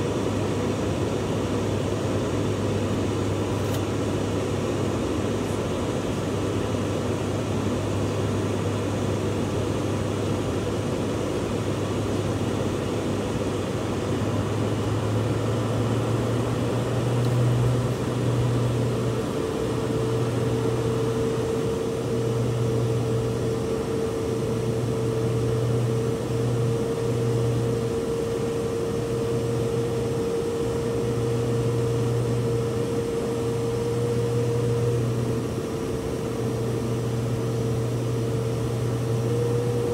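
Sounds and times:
turboprop engines droning: 0.0s - 39.9s
steady higher tone: 15.1s - 39.9s.

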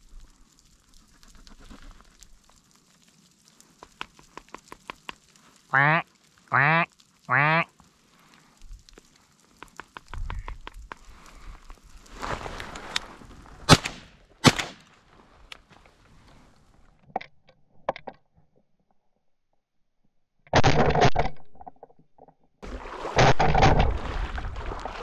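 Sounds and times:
shotgun shots: 13.7s - 14.8s.

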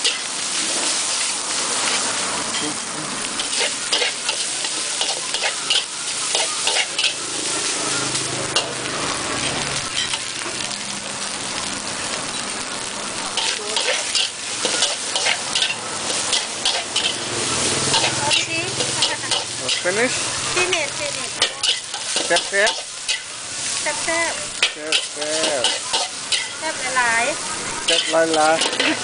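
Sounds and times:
rice sizzling in a wok: 0.0s - 29.0s
metal spatula scraping a pan: 3.4s - 8.8s, 13.4s - 23.3s, 24.2s - 26.9s, 27.8s - 29.0s.

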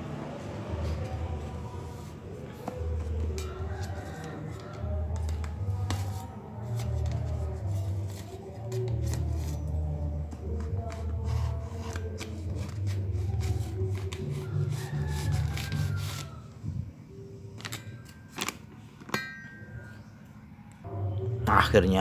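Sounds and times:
knife scraping paper: 1.8s - 9.9s, 10.8s - 16.4s
paper crinkling: 17.6s - 18.9s
low drone: 19.7s - 21.8s.

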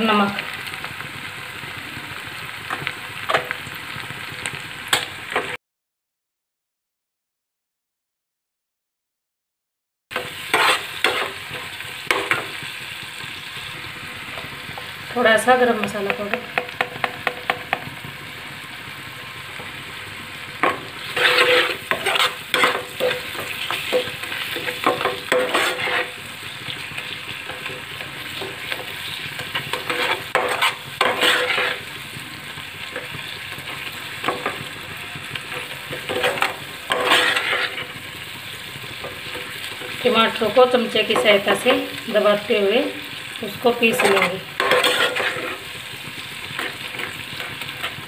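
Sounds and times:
masala sizzling in oil: 0.0s - 5.6s, 10.1s - 48.0s
spoon scraping a pan: 10.2s - 12.7s, 20.6s - 48.0s.

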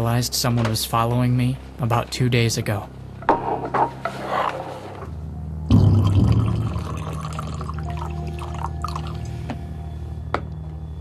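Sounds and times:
coffee pouring into cup: 5.7s - 9.3s.

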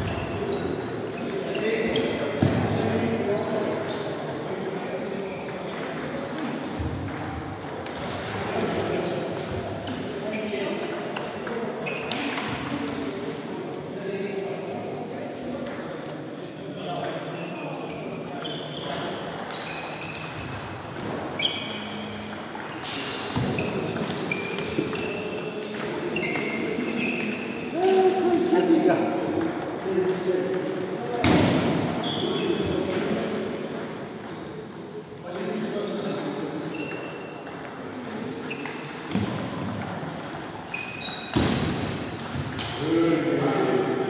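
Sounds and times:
distant table tennis hits: 0.0s - 13.4s, 19.0s - 27.6s, 29.0s - 35.7s, 36.7s - 42.8s
table tennis ball hits: 5.4s - 8.5s, 22.1s - 27.4s, 29.0s - 32.0s, 36.9s - 42.8s.

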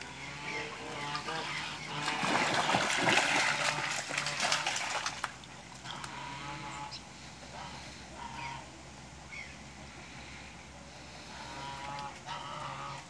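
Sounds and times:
ducks quacking: 0.0s - 5.2s, 5.8s - 13.0s
ducks splashing in water: 0.0s - 8.6s, 11.2s - 13.0s
duck wings beating water: 0.8s - 6.2s.

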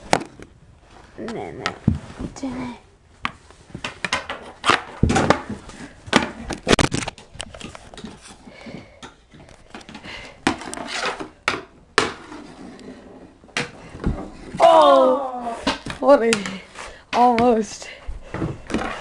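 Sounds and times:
hockey sticks clacking on floor: 3.2s - 12.4s, 15.6s - 17.8s.

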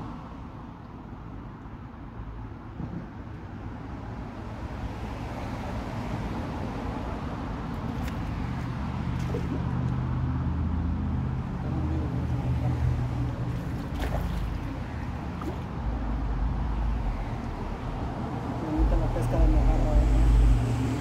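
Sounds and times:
low vehicle rumble: 5.7s - 21.0s.

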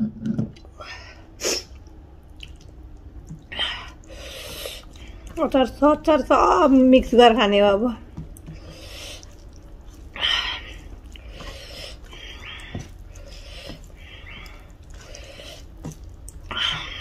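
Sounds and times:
hand squishing food on plate: 1.8s - 5.4s, 8.1s - 17.0s.

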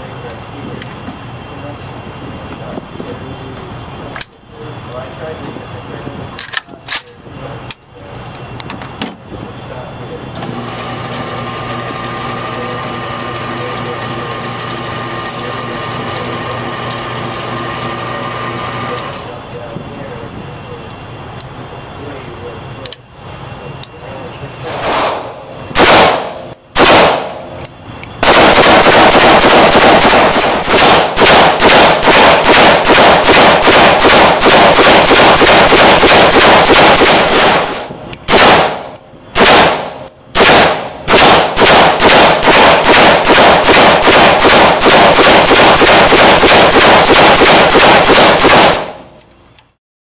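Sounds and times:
rifle gunshots indoors: 24.7s - 27.5s, 28.2s - 49.0s.

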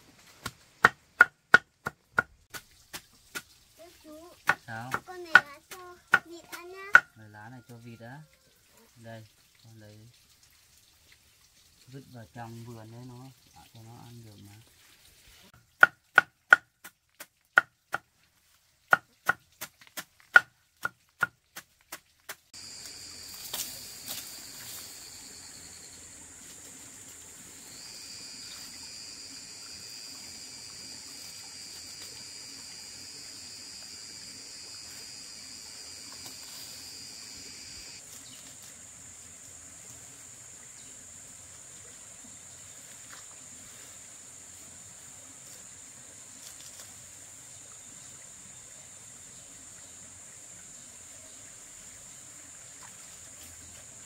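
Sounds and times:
insects droning with high whine: 22.6s - 54.0s.

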